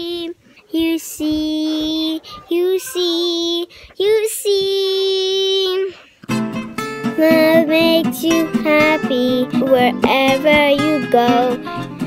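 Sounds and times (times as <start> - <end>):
girl singing unaccompanied: 0.0 - 6.2, 7.0 - 12.0
singer breathing: 3.7 - 4.0.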